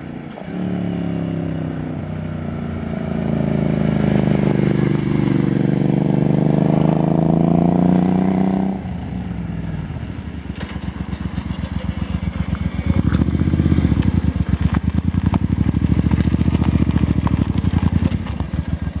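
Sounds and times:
motorcycle engine passing by: 0:00.4 - 0:19.0
motorcycle engine pulsing at low speed: 0:08.8 - 0:19.0.

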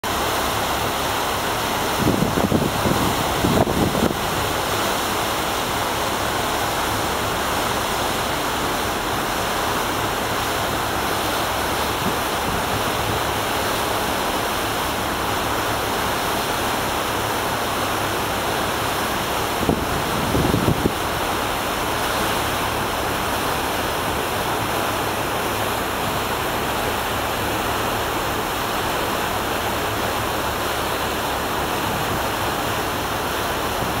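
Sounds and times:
ship wake rushing: 0:00.0 - 0:34.0
wind buffeting microphone: 0:01.9 - 0:04.3, 0:19.6 - 0:21.0.

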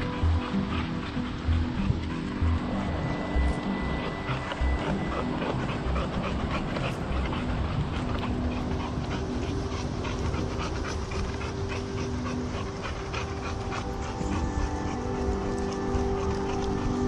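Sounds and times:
dog panting: 0:00.0 - 0:17.0
low microphone rumble: 0:00.0 - 0:17.0.

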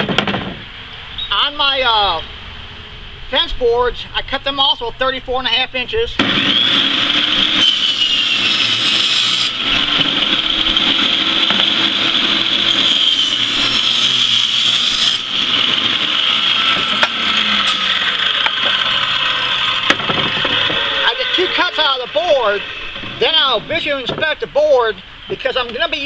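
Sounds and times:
table saw whining: 0:06.2 - 0:24.2
saw blade cutting wood board: 0:06.3 - 0:24.3.

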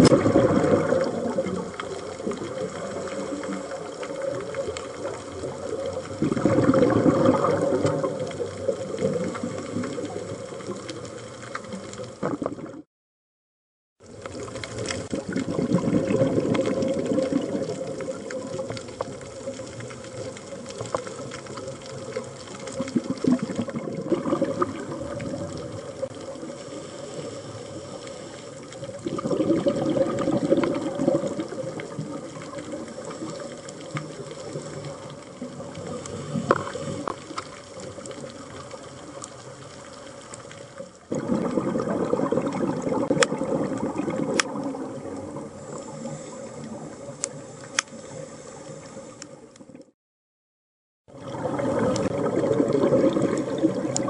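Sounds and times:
diver exhaling bubbles: 0:00.0 - 0:10.8, 0:11.6 - 0:12.9, 0:14.3 - 0:28.0, 0:28.7 - 0:37.3, 0:41.1 - 0:47.4, 0:51.1 - 0:54.0
underwater water rush: 0:00.0 - 0:12.9, 0:14.0 - 0:49.9, 0:51.1 - 0:54.0.

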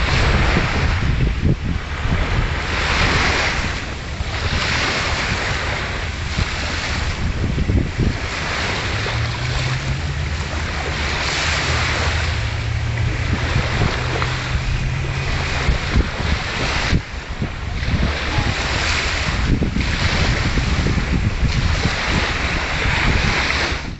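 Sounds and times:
small waves washing onto shore: 0:00.0 - 0:23.9
wind buffeting microphone: 0:00.0 - 0:23.9
low steady hum: 0:05.2 - 0:18.0.

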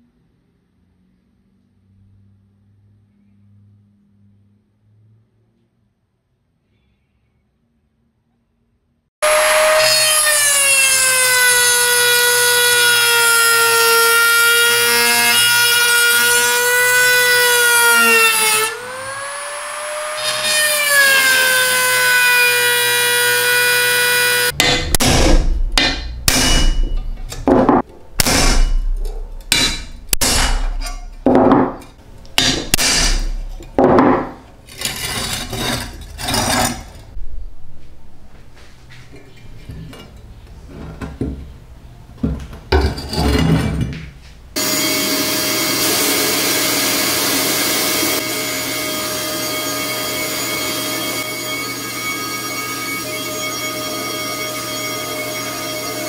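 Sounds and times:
hand scraping on metal: 0:34.7 - 0:37.1
rotary tool grinding metal: 0:34.7 - 0:37.2, 0:45.7 - 0:56.0.

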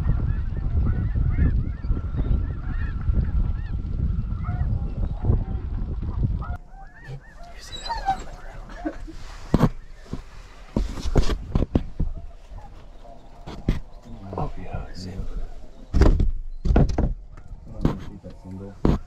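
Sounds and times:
wind buffeting microphone: 0:00.0 - 0:19.0
geese honking: 0:00.1 - 0:05.6, 0:06.4 - 0:10.8.

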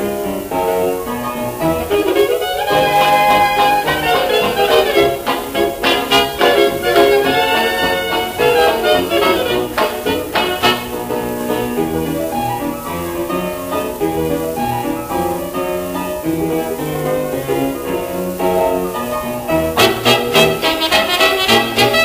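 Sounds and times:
jazz dance band playing: 0:00.0 - 0:22.0
record surface hiss: 0:00.0 - 0:22.0.

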